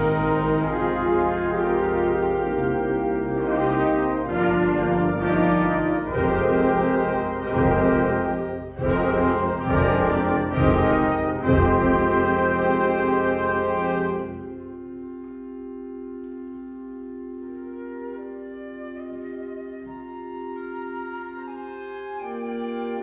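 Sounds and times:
concert band brass chords: 0.0s - 17.5s.

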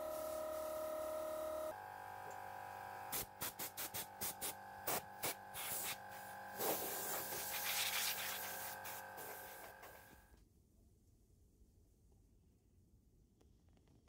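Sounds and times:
compressed air blow gun hissing: 3.1s - 9.8s.

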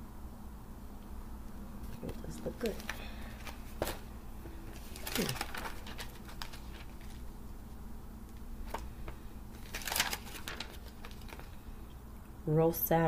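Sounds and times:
low steady hum: 0.0s - 13.0s
page turning rustle: 1.8s - 11.7s.

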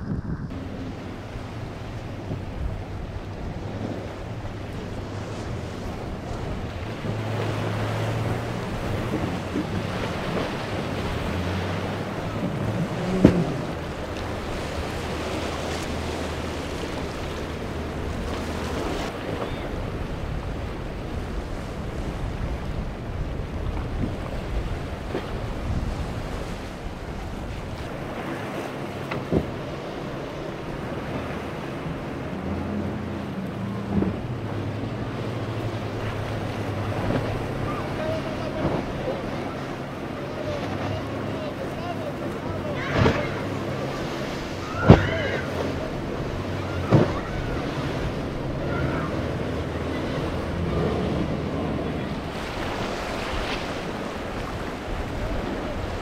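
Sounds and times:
wind noise on microphone: 0.0s - 28.3s
powerboat engine hum: 0.0s - 56.0s
waves breaking: 0.0s - 56.0s.

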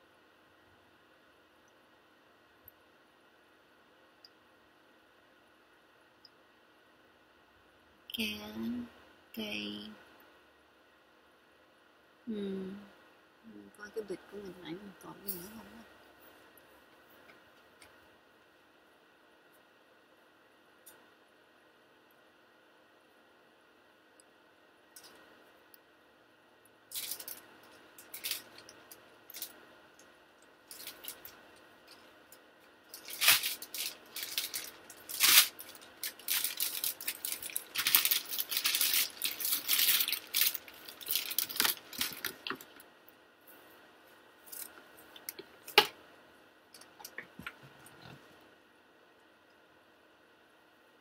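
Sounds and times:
plastic bag rustling: 26.9s - 29.6s, 30.6s - 32.1s, 32.9s - 42.8s.

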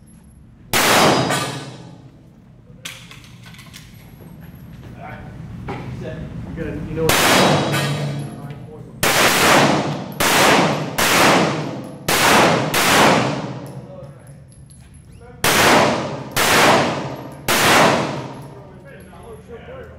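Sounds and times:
pistol shots echoing: 0.8s - 2.0s, 7.1s - 8.3s, 9.0s - 13.9s, 15.4s - 18.6s.

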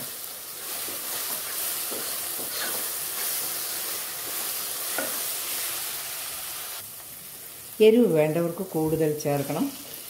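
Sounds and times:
masala sizzling in oil: 0.0s - 10.0s
wooden spoon scraping pan: 0.8s - 5.3s.

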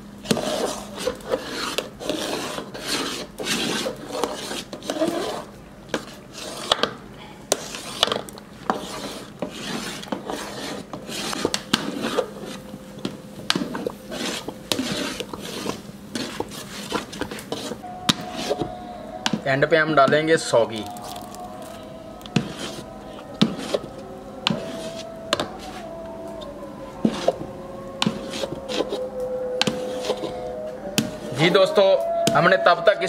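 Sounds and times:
metal spatula scraping a pot: 0.3s - 6.9s, 7.5s - 12.6s, 13.4s - 19.4s, 22.4s - 25.9s, 28.0s - 29.0s, 29.6s - 30.5s.

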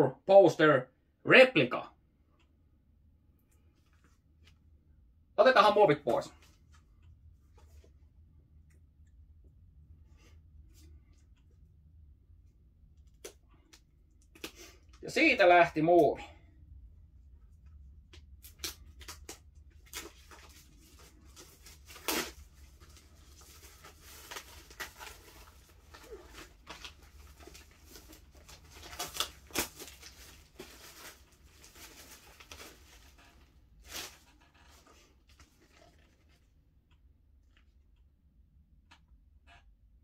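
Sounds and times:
plastic wrap tearing and crinkling: 18.4s - 36.4s.

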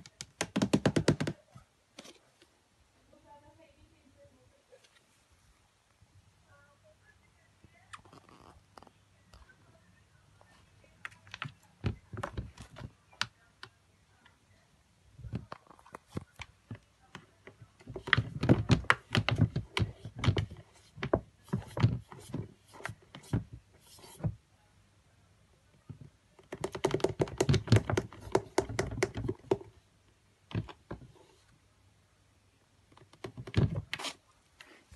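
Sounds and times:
tapping and scratching on plastic: 0.0s - 2.2s, 11.0s - 13.8s, 15.2s - 24.4s, 25.9s - 29.8s, 30.5s - 31.4s, 32.9s - 34.8s.

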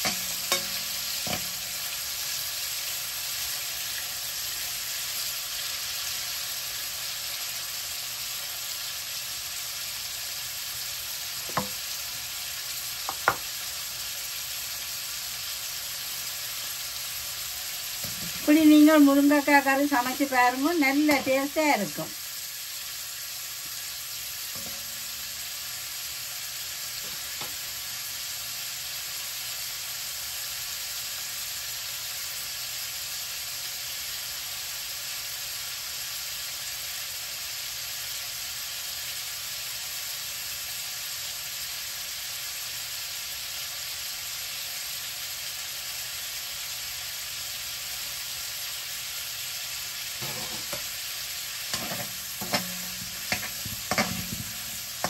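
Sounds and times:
meat sizzling in a pan: 0.0s - 55.0s.

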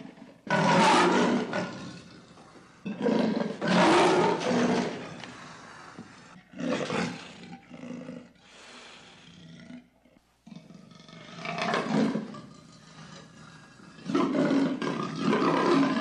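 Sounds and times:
big cat growling: 0.0s - 8.4s, 9.2s - 16.0s.

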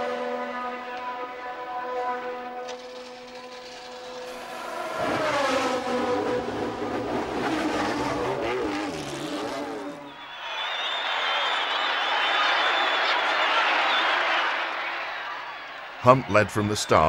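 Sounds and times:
racing car engine revving: 0.0s - 10.1s.

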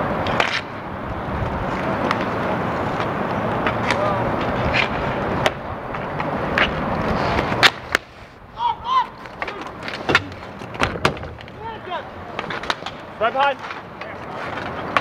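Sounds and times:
skate wheels rolling: 0.0s - 15.0s
hockey sticks and puck clacking: 0.2s - 0.8s, 1.7s - 15.0s
players shouting: 8.5s - 10.5s, 11.5s - 14.5s.

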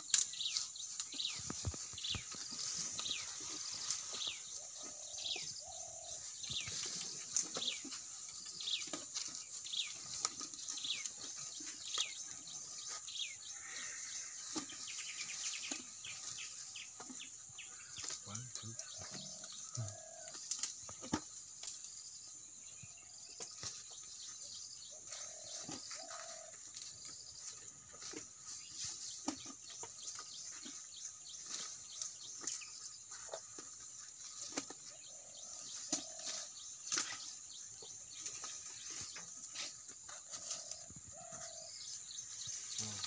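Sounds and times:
leaves rustling: 0.0s - 5.0s
branches cracking and snapping: 19.6s - 21.9s, 35.8s - 37.3s.

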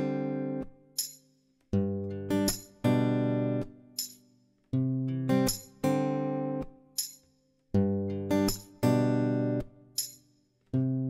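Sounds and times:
acoustic guitar strumming chords: 0.0s - 0.7s, 1.8s - 4.0s, 4.8s - 6.8s, 7.8s - 10.0s.

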